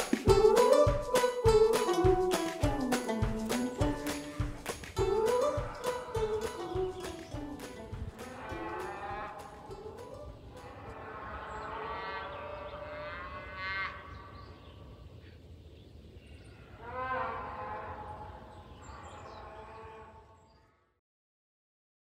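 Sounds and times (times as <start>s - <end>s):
cows mooing: 8.2s - 14.2s.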